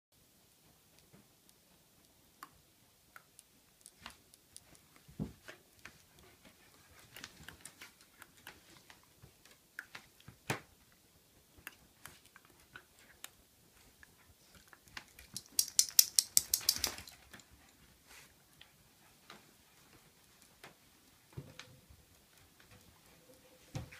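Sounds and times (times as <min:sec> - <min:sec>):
dog claws clicking on wood floor: 0:14.8 - 0:17.5.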